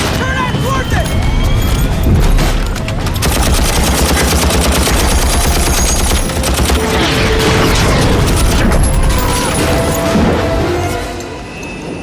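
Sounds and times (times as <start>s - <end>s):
helicopter rotors rumbling: 0.5s - 10.9s
rapid automatic gunfire: 2.9s - 9.0s.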